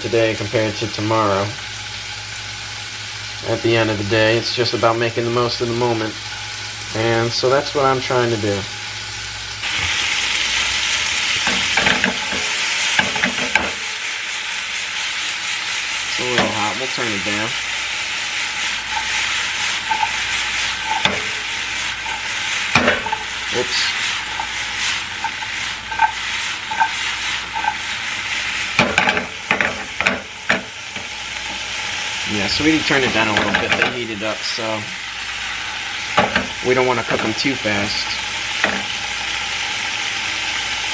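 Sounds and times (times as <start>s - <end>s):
beans sizzling in a frying pan: 0.0s - 40.9s
beans rattling in a shaken pan: 11.4s - 29.9s.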